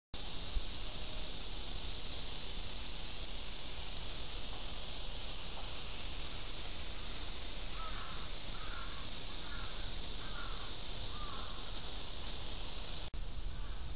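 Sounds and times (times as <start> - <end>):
high-pitched insect chorus: 0.2 - 13.9
crow cawing: 7.7 - 11.7, 13.6 - 13.9.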